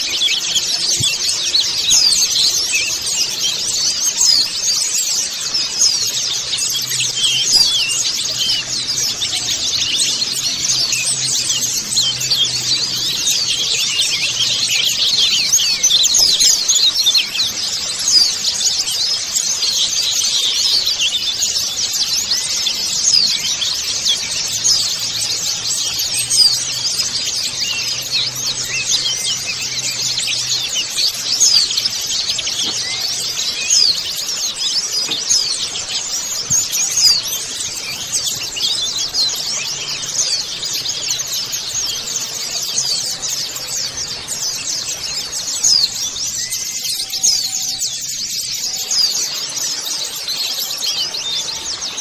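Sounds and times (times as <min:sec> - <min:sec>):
birds chirping and twittering: 0:00.0 - 0:52.0.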